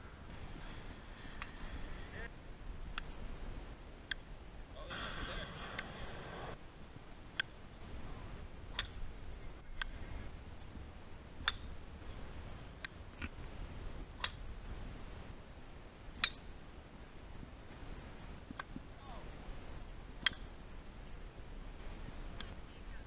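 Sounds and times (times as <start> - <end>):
golf drivers striking balls: 8.7 - 10.0, 11.4 - 11.8, 16.2 - 16.6, 20.2 - 20.6.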